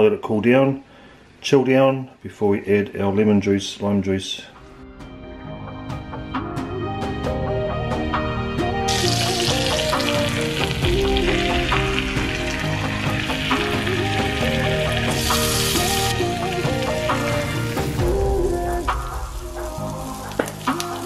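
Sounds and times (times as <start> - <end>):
background music: 4.5 - 21.0
fish sizzling in frying pan: 8.9 - 21.0.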